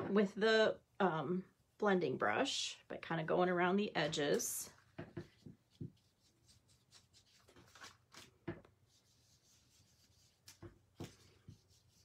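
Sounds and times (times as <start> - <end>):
brush scuffing on cardstock: 4.8 - 8.2, 8.8 - 12.0.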